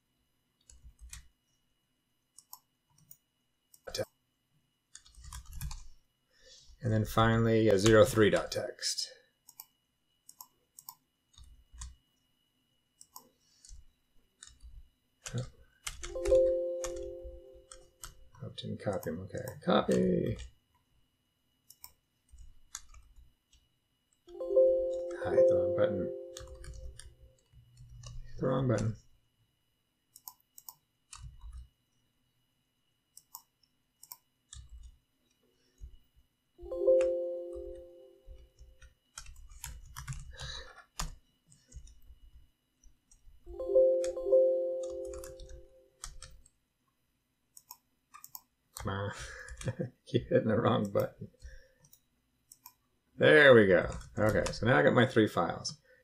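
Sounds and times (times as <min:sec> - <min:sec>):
computer mouse clicks: 0:00.6 - 0:01.3, 0:02.3 - 0:04.1, 0:04.9 - 0:05.9, 0:09.4 - 0:12.2, 0:13.0 - 0:16.2, 0:21.6 - 0:24.3, 0:26.3 - 0:28.9, 0:30.1 - 0:31.7, 0:33.1 - 0:36.0, 0:38.3 - 0:43.4, 0:44.8 - 0:46.6, 0:47.5 - 0:49.8, 0:50.8 - 0:52.8
mouse and keyboard clicks: 0:14.4 - 0:16.2, 0:30.1 - 0:31.7, 0:47.6 - 0:48.9
computer error chime: 0:16.0 - 0:17.8, 0:24.4 - 0:26.8, 0:36.6 - 0:38.3, 0:43.5 - 0:45.8
keyboard key presses: 0:26.2 - 0:29.0, 0:44.0 - 0:46.5.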